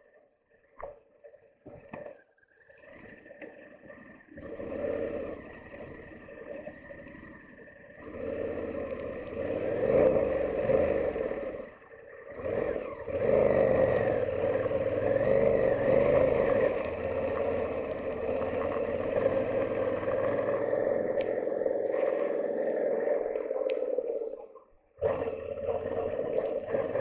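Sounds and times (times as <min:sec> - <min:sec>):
motorcycle engine revving: 0:04.4 - 0:06.2, 0:07.9 - 0:22.0, 0:25.0 - 0:27.0.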